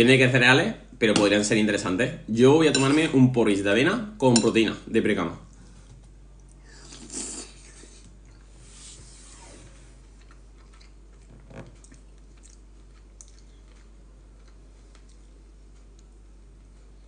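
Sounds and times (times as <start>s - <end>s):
person chewing soup: 10.0s - 16.1s.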